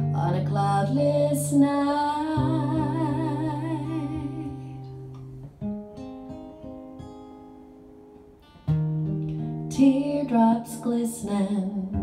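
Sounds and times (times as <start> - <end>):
woman singing: 0.0 - 5.1, 9.7 - 12.0
acoustic guitar: 0.0 - 12.0.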